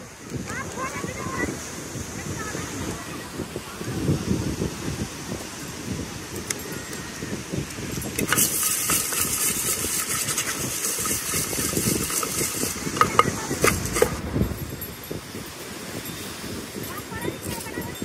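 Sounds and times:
wind and surf rumble: 0.0 - 18.0
spoon clinking on mug: 8.0 - 14.1
puffed rice rattling in metal mug: 8.0 - 14.2.

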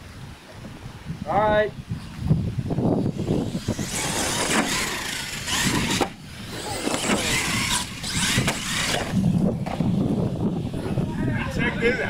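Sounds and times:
toy truck motor whining: 3.1 - 10.0.

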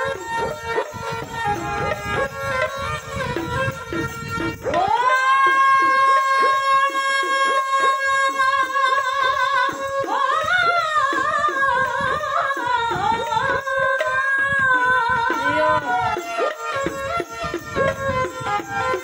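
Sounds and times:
hand drum beats: 0.0 - 19.0
sarangi: 0.0 - 19.0
women singing: 4.6 - 16.7.

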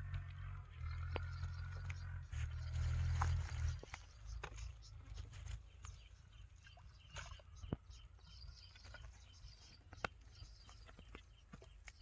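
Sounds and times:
rustling in dry grass: 2.2 - 5.7.

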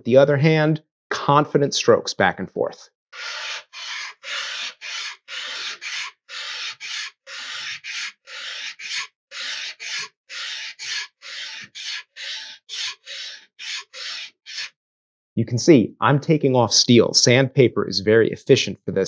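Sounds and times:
steel rasping on sandpaper: 3.2 - 14.7.

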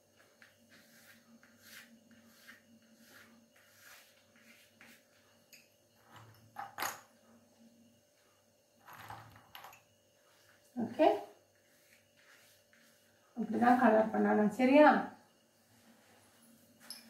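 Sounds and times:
chalk rubbing on a board: 0.4 - 5.2, 11.7 - 13.0.

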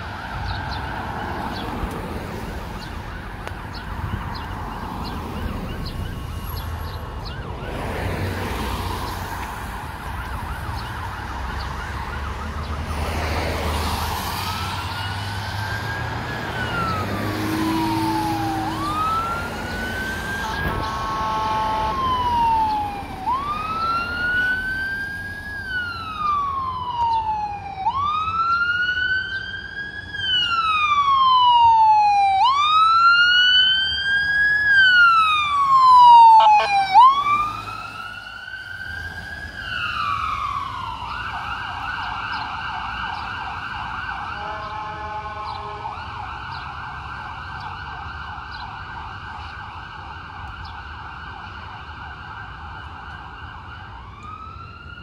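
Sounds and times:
ambulance siren wailing: 0.0 - 55.0
siren fast yelp: 14.3 - 48.5
vehicle horn honks: 20.4 - 22.1, 36.4 - 36.9, 44.4 - 45.9.

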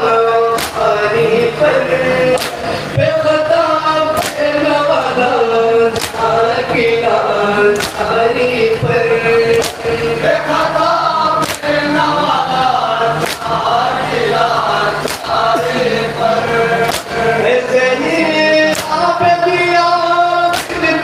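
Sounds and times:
men chanting over microphones: 0.0 - 21.0
hands slapping chests: 2.4 - 2.7, 6.0 - 6.2, 9.5 - 9.8, 11.4 - 11.7, 13.2 - 13.5, 15.0 - 15.3, 16.8 - 17.2, 20.5 - 20.8.

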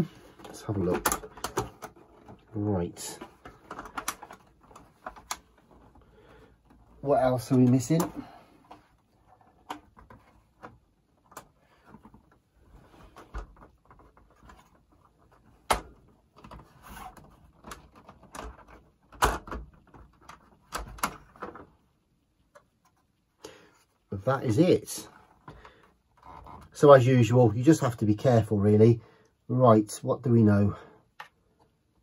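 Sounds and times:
plastic casing clicks and clacks: 0.3 - 2.5, 3.2 - 6.0, 15.6 - 21.8.

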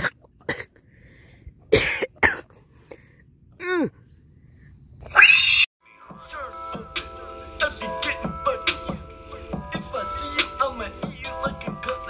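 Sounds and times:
falling squeal: 5.1 - 5.7.

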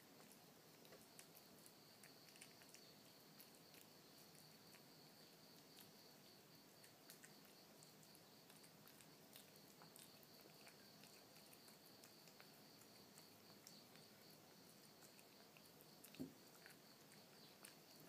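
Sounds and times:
kitten chewing and licking: 0.0 - 18.0
quiet hiss: 0.0 - 18.0.

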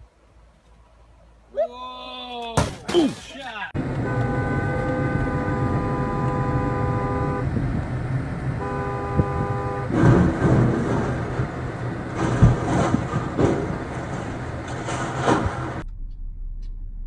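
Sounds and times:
road and engine noise: 0.0 - 2.2, 3.1 - 17.0
car horn: 3.8 - 7.7, 8.5 - 10.7
rumbling rush of noise: 3.8 - 17.0.

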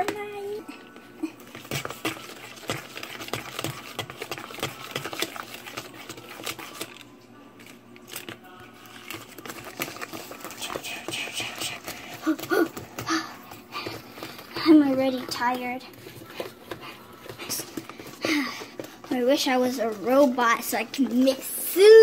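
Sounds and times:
batter stirred in plastic container: 0.0 - 22.0.

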